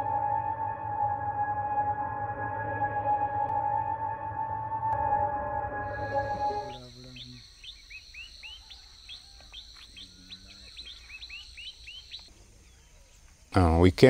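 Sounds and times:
soundtrack music: 0:00.0 - 0:06.9
high insect drone: 0:05.6 - 0:14.0
small birds chirping: 0:05.9 - 0:14.0.

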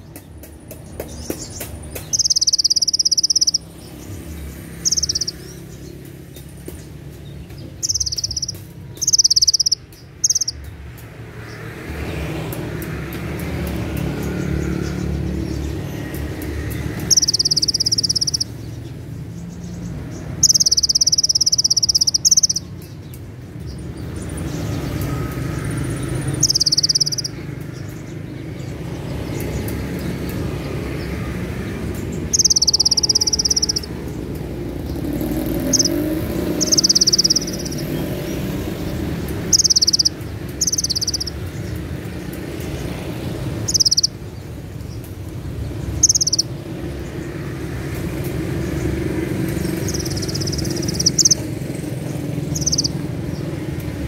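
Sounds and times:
low hum of street noise: 0:00.0 - 0:54.0
sunbird singing trilled bursts: 0:01.2 - 0:10.6, 0:16.7 - 0:23.0, 0:24.6 - 0:27.9, 0:32.0 - 0:41.8, 0:42.7 - 0:44.6, 0:45.8 - 0:46.8, 0:48.4 - 0:53.5.

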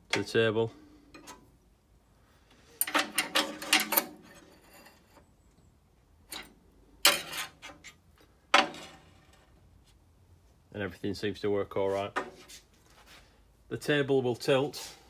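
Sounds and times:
metal knocking and scraping on metal: 0:01.1 - 0:01.5, 0:02.8 - 0:05.4, 0:06.2 - 0:09.6.

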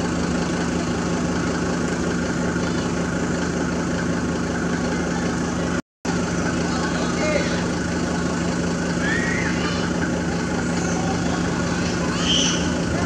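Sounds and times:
engine idling hum: 0:00.0 - 0:13.0.

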